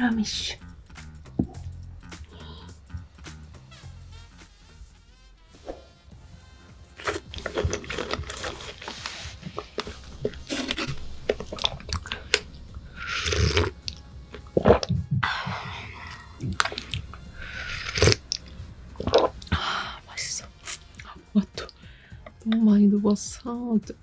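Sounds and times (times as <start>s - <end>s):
wet chewing and smacking: 6.9s - 19.7s, 20.4s - 22.5s.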